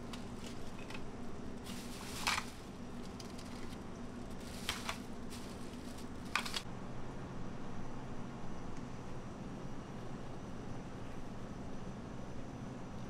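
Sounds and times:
plastic bag crinkling: 0.0s - 6.6s
steady low hum: 0.0s - 13.0s.

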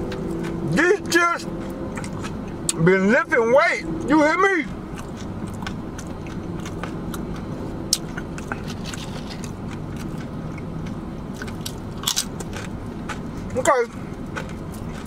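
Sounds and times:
tortilla chips crunching: 4.6s - 15.0s.

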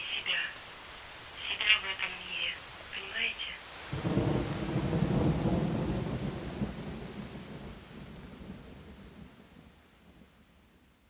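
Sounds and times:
steady hiss: 0.0s - 5.6s.

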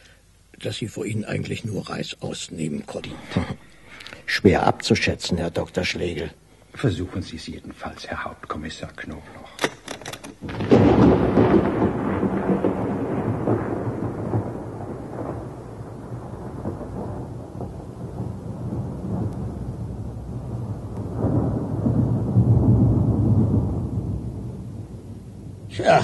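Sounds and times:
rain: 10.4s - 26.0s
thunder rumbling: 10.4s - 26.0s.

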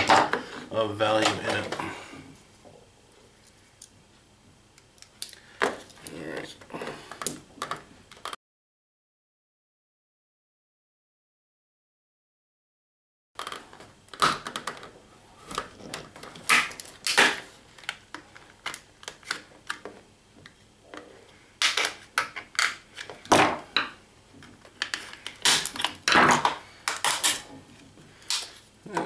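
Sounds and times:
plastic case cracking open: 24.6s - 27.4s.

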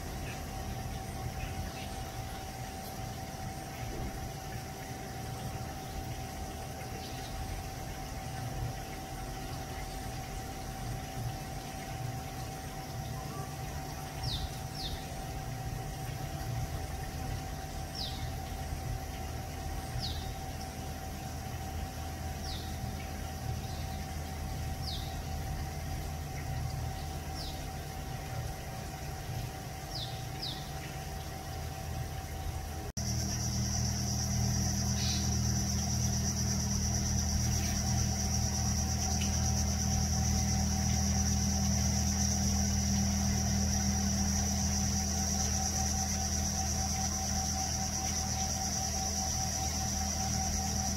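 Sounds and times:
faint steady hum: 0.0s - 50.9s
bird chirping: 34.8s - 36.1s.

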